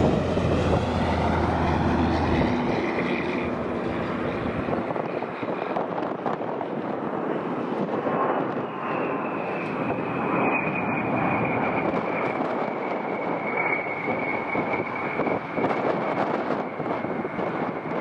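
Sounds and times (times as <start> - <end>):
aircraft engines with high whine: 0.0 - 18.0.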